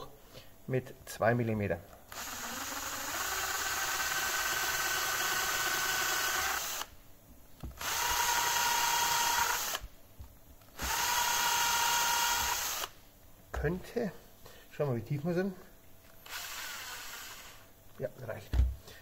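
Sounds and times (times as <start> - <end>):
cordless drill whining: 2.1 - 6.9, 7.8 - 9.8, 10.8 - 12.9, 16.2 - 17.6.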